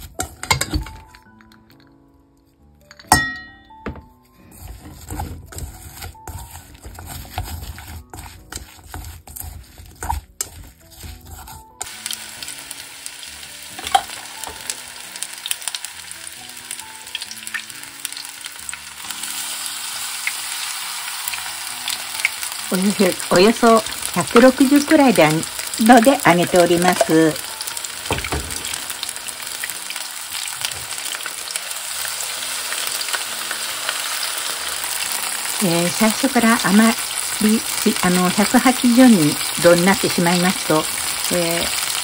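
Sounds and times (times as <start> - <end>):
faint background music: 0.0 - 42.0
ice clinking in a glass: 2.9 - 3.7
chopsticks stirring in metal bowl: 4.4 - 12.1, 22.2 - 29.0
oil deep-frying sizzle: 4.4 - 42.0
water pouring: 21.7 - 33.4.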